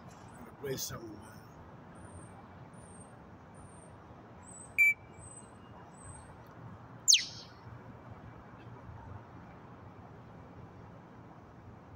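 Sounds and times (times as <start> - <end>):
parrot whistle sliding down: 7.1 - 7.4
parrot beeping call: 7.1 - 7.5.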